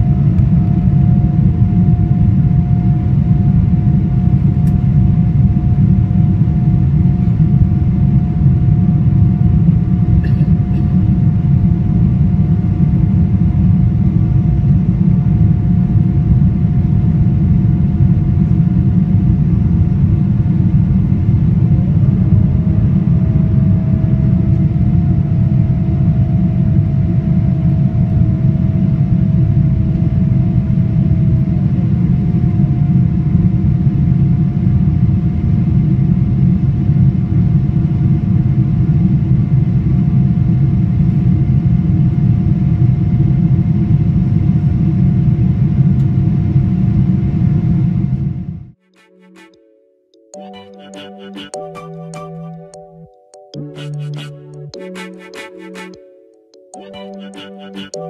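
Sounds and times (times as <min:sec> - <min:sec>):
lower sliding whine: 0:00.0 - 0:35.6
steady whine: 0:00.0 - 0:42.6.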